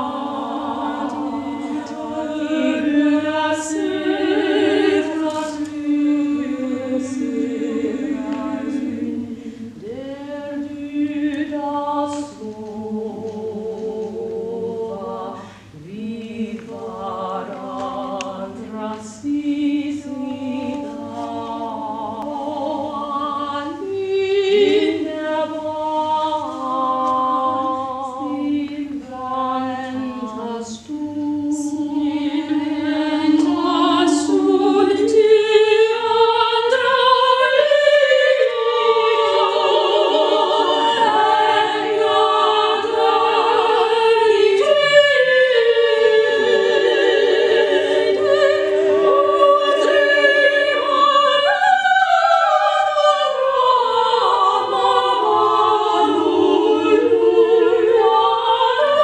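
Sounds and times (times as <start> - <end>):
women singing a cappella: 0.0 - 59.0.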